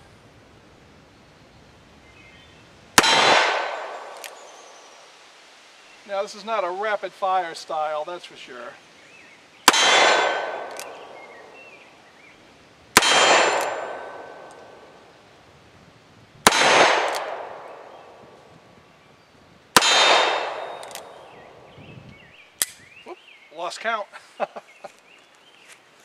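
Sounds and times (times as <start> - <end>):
steel target ringing: 3.0 - 4.1, 9.7 - 11.4, 13.0 - 14.7, 19.8 - 21.3
revolver shots: 9.7 - 11.6, 13.0 - 14.8, 19.8 - 21.4.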